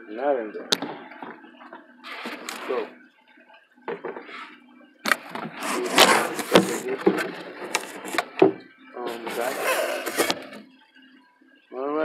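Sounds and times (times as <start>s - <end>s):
cardboard rubbing and scraping: 5.5s - 8.3s, 9.2s - 10.5s.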